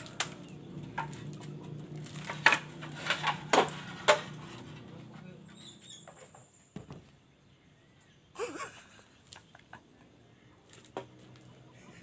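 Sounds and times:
clay roof tiles knocking and clinking: 0:00.0 - 0:05.2.

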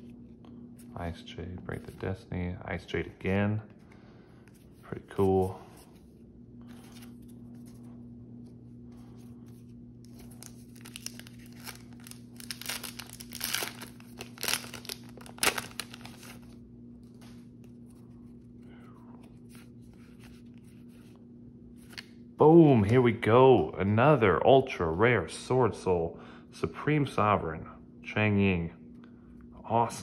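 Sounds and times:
foil wrapper tearing and crinkling: 0:10.0 - 0:16.6.

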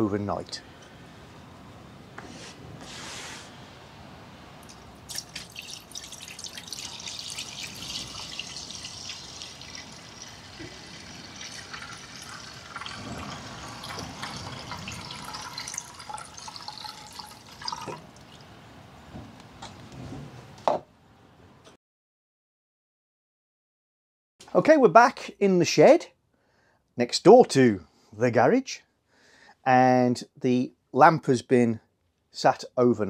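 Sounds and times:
petrol pouring into plastic: 0:05.1 - 0:18.0.

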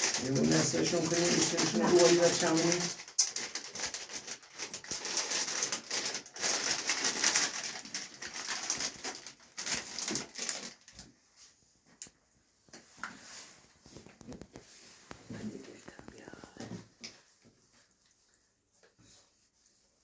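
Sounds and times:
plastic bag crinkling: 0:00.0 - 0:11.2.

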